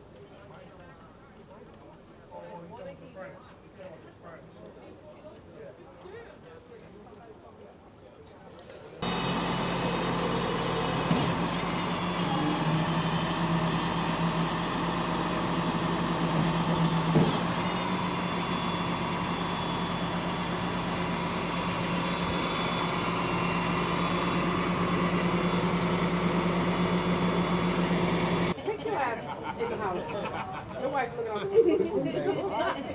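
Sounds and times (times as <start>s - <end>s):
truck engine running: 9.0s - 28.6s
brief knock: 17.1s - 17.4s.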